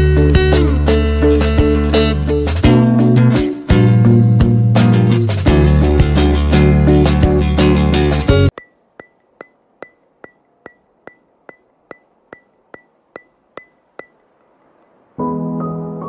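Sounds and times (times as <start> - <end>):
sharp ticks with high ping: 8.5 - 15.0.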